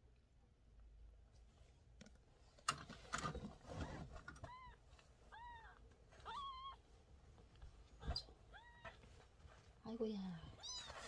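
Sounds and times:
close rustling and bumping: 2.5 - 5.2.

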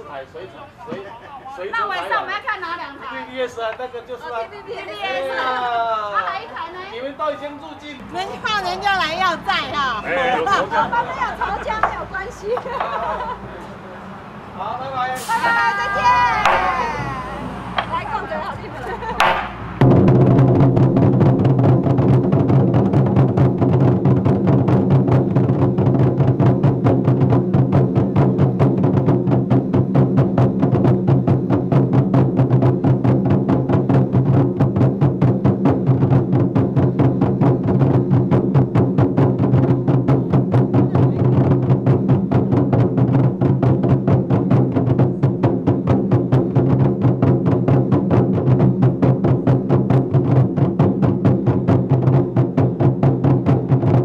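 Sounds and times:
large barrel drums beaten rapidly: 15.2 - 17.2, 17.8 - 54.0.

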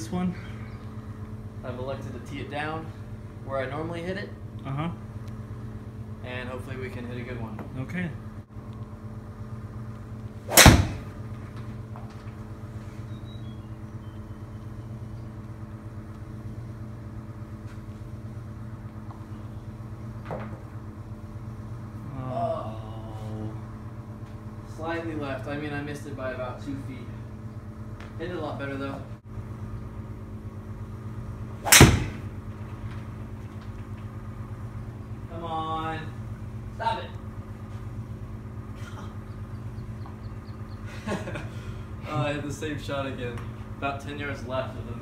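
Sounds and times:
steady low hum: 0.0 - 45.0
golf club striking ball: 10.5 - 11.3, 31.6 - 32.6.

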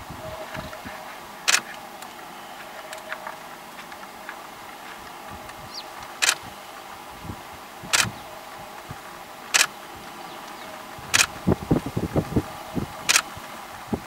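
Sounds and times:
sharp clicks: 1.5 - 2.2, 5.4 - 6.5, 7.9 - 8.2, 9.5 - 9.8, 10.4 - 11.4, 13.1 - 13.3.

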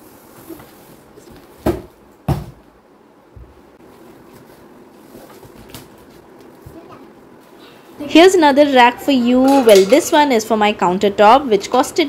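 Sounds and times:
cardboard box thumping: 1.6 - 2.6.

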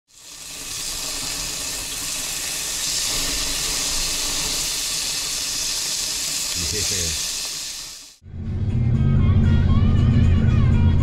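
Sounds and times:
bacon sizzling on a grill: 0.1 - 8.2.

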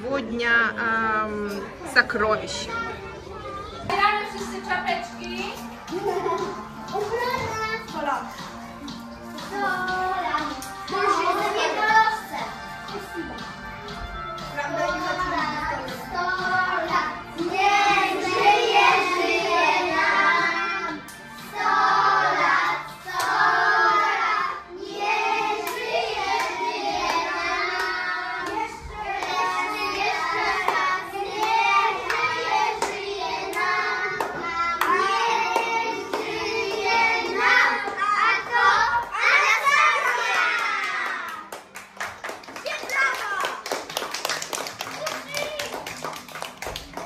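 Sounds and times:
children singing a celebration song: 2.5 - 4.6, 5.8 - 41.6
clapping: 40.1 - 47.0.

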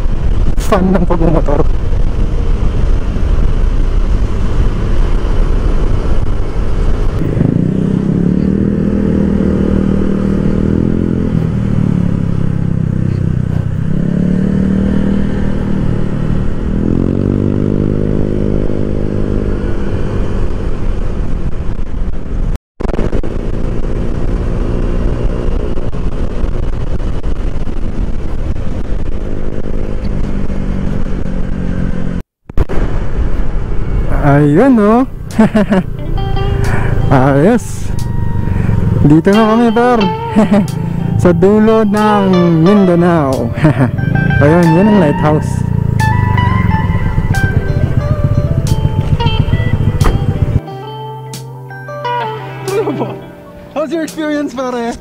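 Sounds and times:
wind rush on microphone: 0.0 - 11.6, 14.6 - 34.2
scooter engine running: 35.4 - 42.9, 43.5 - 50.6.

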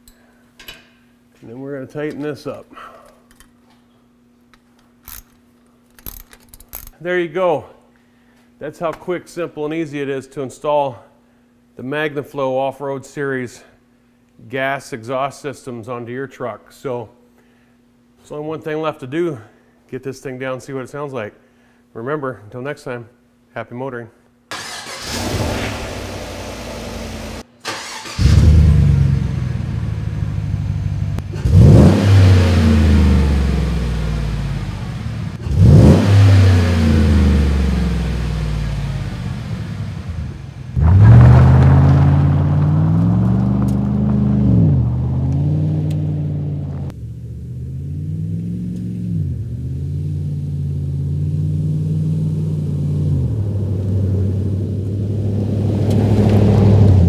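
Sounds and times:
truck engine revving: 24.7 - 57.0
truck engine driving: 28.2 - 57.0.

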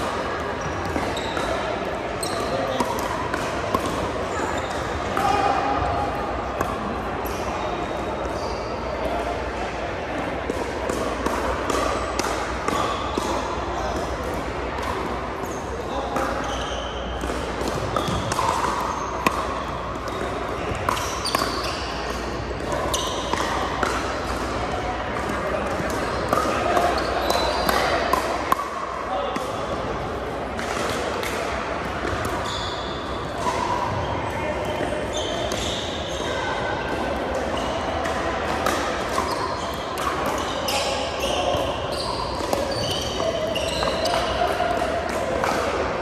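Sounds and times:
background hubbub: 0.0 - 46.0
murmur of voices in gym: 0.0 - 46.0
sneakers squeaking on hardwood: 0.6 - 1.6, 2.2 - 2.8, 17.7 - 23.7, 26.0 - 28.0, 32.3 - 36.5, 39.2 - 44.4.

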